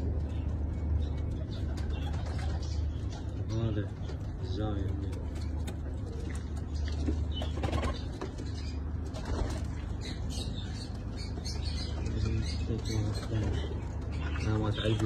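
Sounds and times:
steady low hum: 0:00.0 - 0:15.0
pigeons cooing: 0:01.2 - 0:15.0
wings flapping and rustling: 0:05.2 - 0:10.2.

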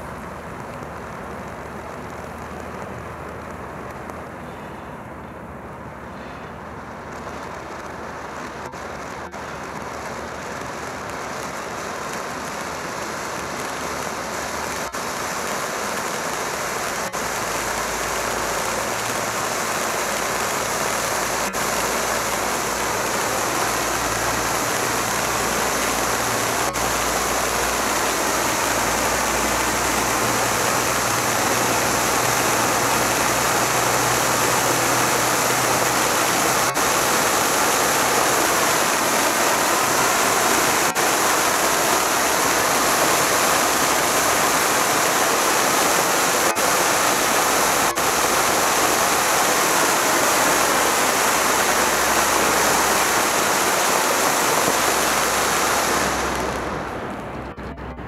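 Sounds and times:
firework fountain hissing: 0:06.4 - 0:57.5.

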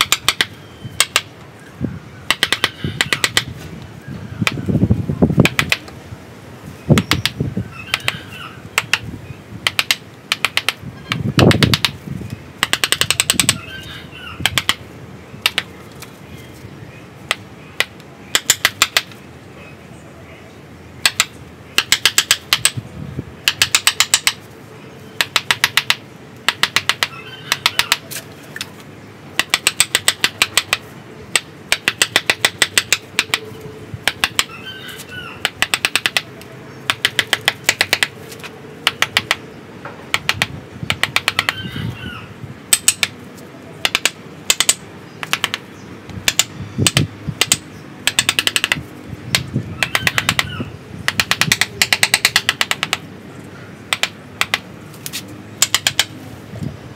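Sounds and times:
mallet tapping a chisel into wood: 0:00.0 - 0:01.3, 0:02.3 - 0:03.5, 0:05.4 - 0:05.9, 0:08.8 - 0:09.0, 0:09.6 - 0:12.0, 0:12.6 - 0:13.6, 0:14.4 - 0:14.8, 0:15.4 - 0:15.7, 0:17.3 - 0:19.1, 0:21.0 - 0:22.8, 0:23.4 - 0:24.4, 0:25.2 - 0:28.0, 0:29.4 - 0:33.4, 0:34.0 - 0:34.5, 0:35.4 - 0:36.3, 0:36.9 - 0:38.2, 0:38.8 - 0:39.4, 0:40.1 - 0:41.6, 0:42.7 - 0:43.2, 0:43.8 - 0:45.6, 0:46.2 - 0:53.0, 0:53.9 - 0:54.6, 0:55.6 - 0:56.1.

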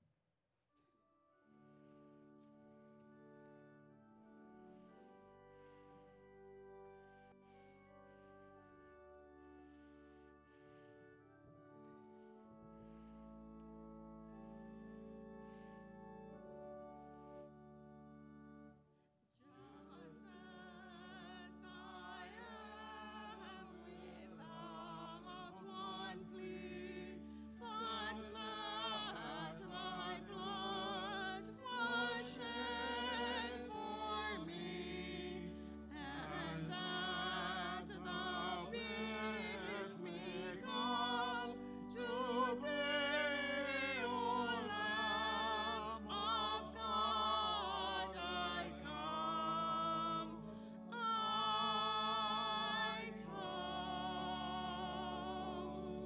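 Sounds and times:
sustained organ chords: 0:01.3 - 0:56.0
person singing a hymn with vibrato: 0:19.4 - 0:56.0.

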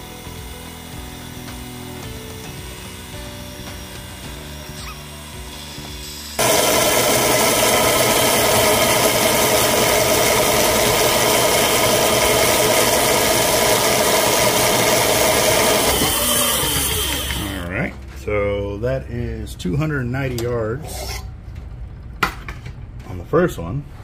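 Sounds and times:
line-spooling machine motor whine: 0:00.0 - 0:17.7.

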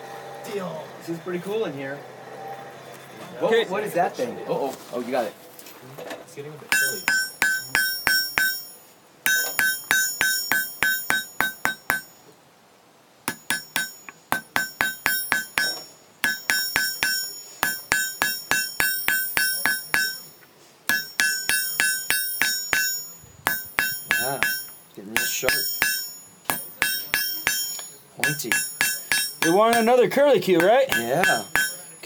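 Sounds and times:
hammer ringing on anvil: 0:06.7 - 0:12.2, 0:13.3 - 0:32.0.

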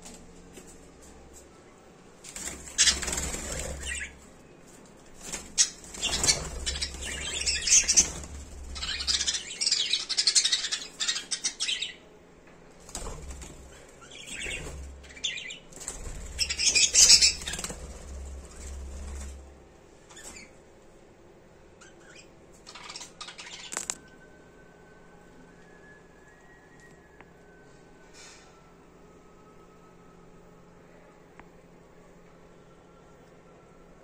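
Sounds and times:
birds flapping wings: 0:02.2 - 0:04.2, 0:05.0 - 0:09.4, 0:12.8 - 0:19.5.

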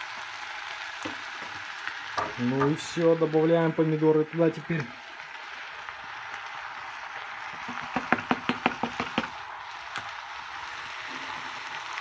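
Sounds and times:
vegetables hissing while cooking: 0:00.0 - 0:12.0
cutting board knocking on pot rim: 0:07.8 - 0:09.3.

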